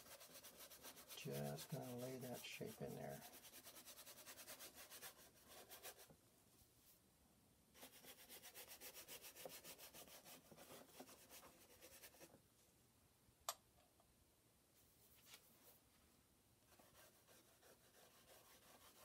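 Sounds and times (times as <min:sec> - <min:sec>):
brush scrubbing paint: 0:00.0 - 0:06.1, 0:07.8 - 0:12.4, 0:16.7 - 0:19.0.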